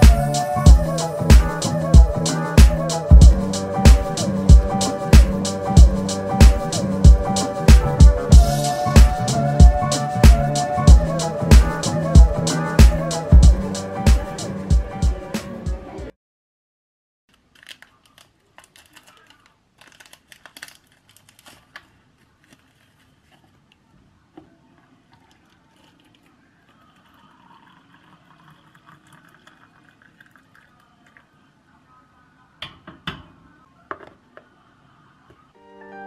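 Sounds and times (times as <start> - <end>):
water poured into a mug: 25.1 - 31.4.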